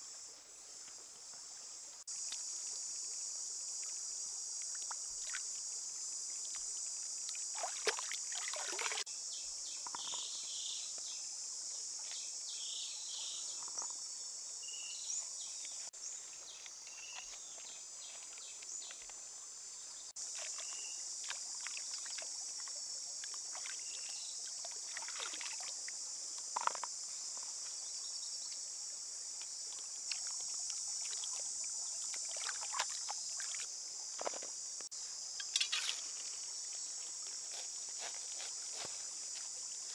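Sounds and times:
high-pitched insect chorus: 0:00.0 - 0:39.9
water splashing and trickling: 0:02.0 - 0:09.1, 0:15.6 - 0:19.4, 0:20.1 - 0:28.0, 0:28.7 - 0:34.6, 0:35.4 - 0:39.9.

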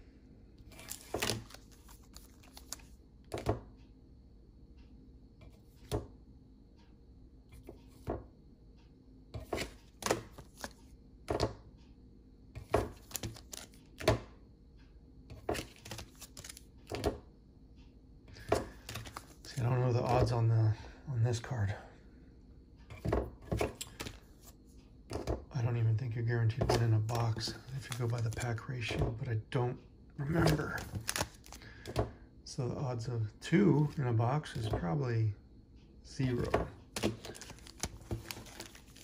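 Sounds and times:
trading cards clicking and snapping: 0:12.7 - 0:14.2, 0:15.4 - 0:17.2, 0:18.4 - 0:20.3, 0:23.6 - 0:24.2, 0:26.7 - 0:28.6, 0:30.3 - 0:32.0, 0:36.3 - 0:39.0.

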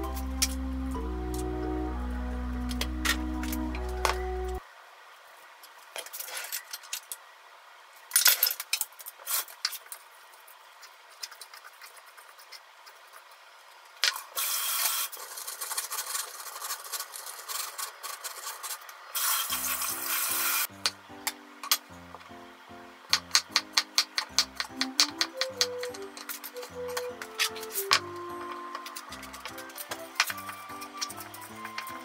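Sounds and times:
background music: 0:00.0 - 0:04.6, 0:19.5 - 0:32.0
scraping rustle: 0:14.9 - 0:20.0
kitchen clicks and taps: 0:23.1 - 0:31.9.

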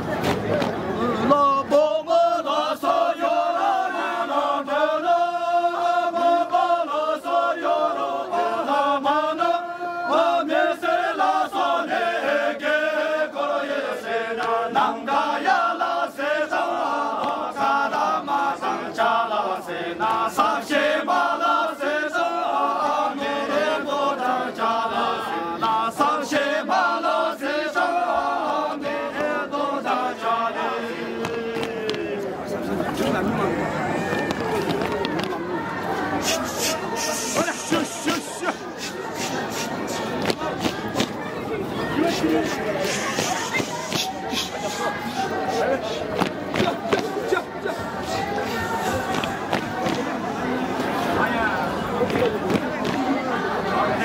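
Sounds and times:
men singing in unison: 0:01.2 - 0:32.4.

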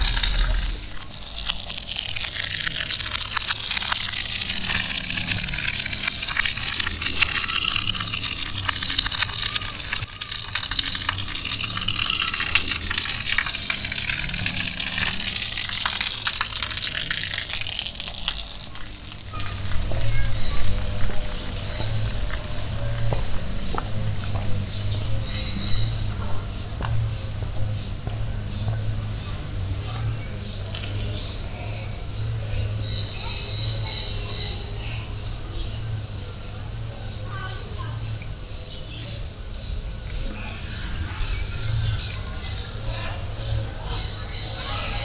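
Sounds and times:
water gushing: 0:00.0 - 0:22.9, 0:29.1 - 0:35.9.

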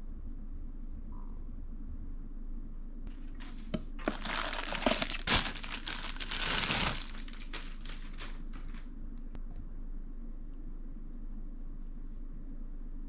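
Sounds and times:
plastic bag crinkling: 0:03.4 - 0:08.9.

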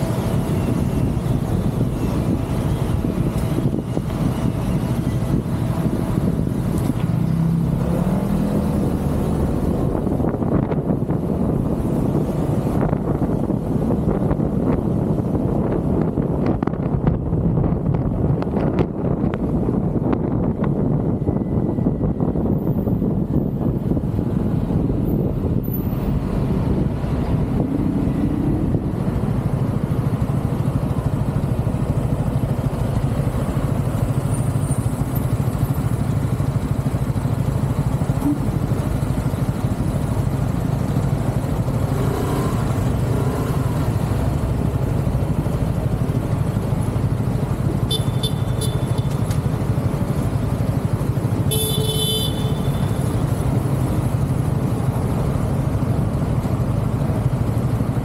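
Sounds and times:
motorcycle engines running: 0:00.0 - 0:58.0
high-pitched horn beeps: 0:47.9 - 0:49.1, 0:51.5 - 0:53.0.

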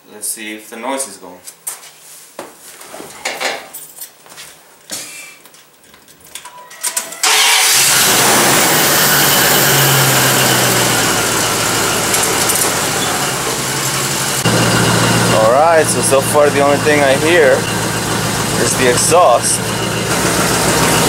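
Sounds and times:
pickup engine starting and running: 0:07.2 - 0:21.0.

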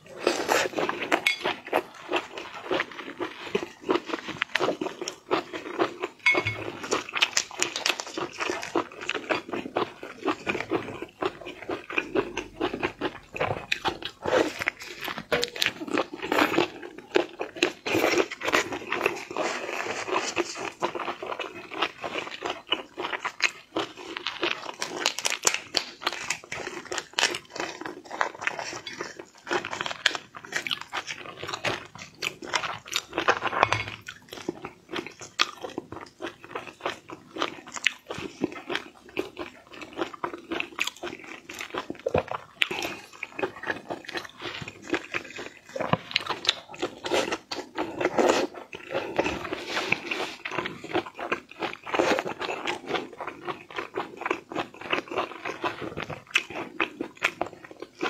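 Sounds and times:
wet chewing and crunching: 0:00.0 - 0:58.0.

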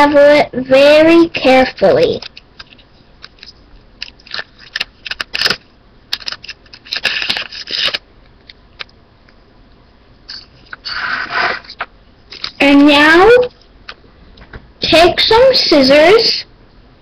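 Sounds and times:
gum wrapper crinkling: 0:02.2 - 0:08.9, 0:11.6 - 0:12.6.

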